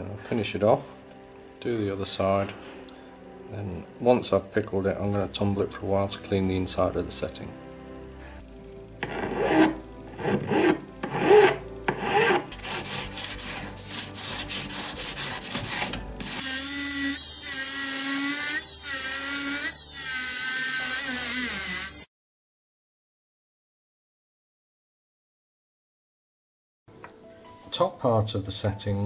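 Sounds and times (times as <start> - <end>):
hand file rasping on metal: 9.0 - 22.0
rotary tool whine: 15.7 - 22.1.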